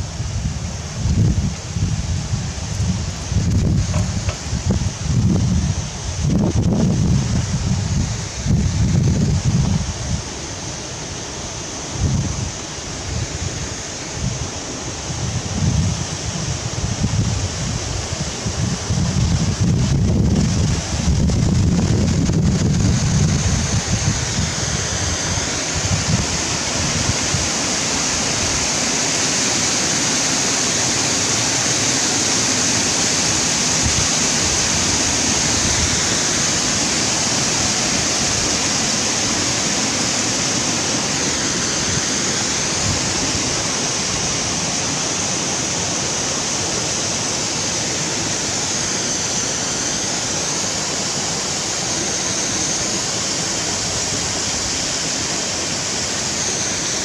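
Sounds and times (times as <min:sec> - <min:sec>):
wind buffeting microphone: 0:00.0 - 0:28.8
mountain stream rushing: 0:00.0 - 0:57.0.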